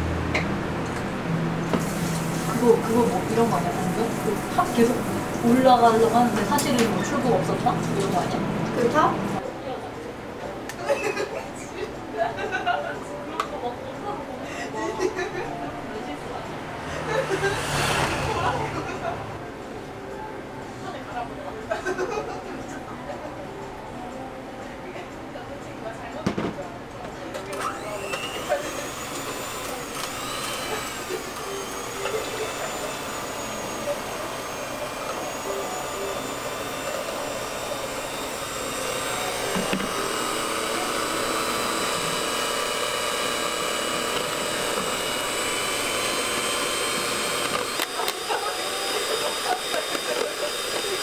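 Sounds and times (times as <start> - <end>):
electric hand mixer whining: 0.9 - 9.4, 17.0 - 19.0, 27.6 - 51.0.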